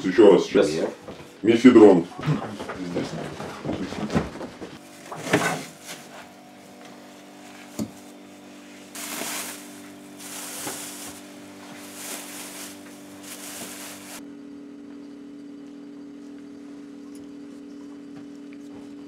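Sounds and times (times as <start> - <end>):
steady low hum: 0.0 - 19.0
plastic bag crinkling: 8.9 - 14.2.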